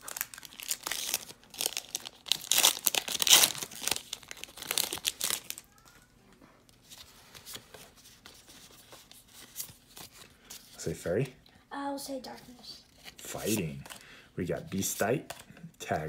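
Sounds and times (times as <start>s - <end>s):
foil wrapper crinkling: 0.0s - 6.0s.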